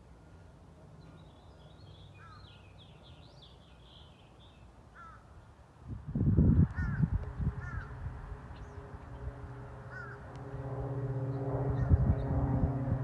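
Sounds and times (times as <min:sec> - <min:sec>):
birds chirping: 0:00.2 - 0:05.5, 0:06.7 - 0:10.3.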